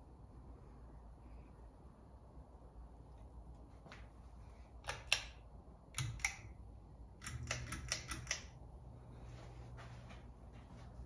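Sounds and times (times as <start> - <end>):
sharp mechanical clicks: 4.8 - 8.6.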